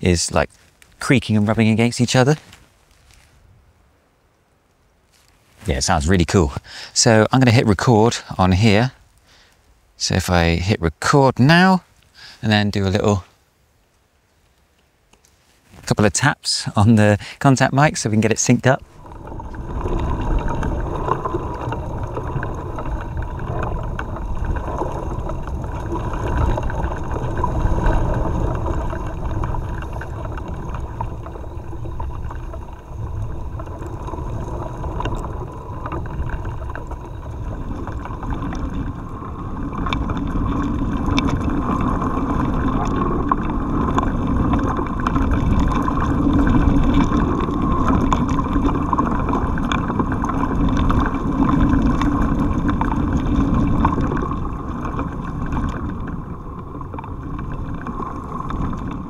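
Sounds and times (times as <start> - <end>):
branches creaking: 0.0 - 7.0, 18.7 - 59.0
twigs ticking and rattling: 0.3 - 3.4
wind rumbling on microphone: 18.2 - 59.0.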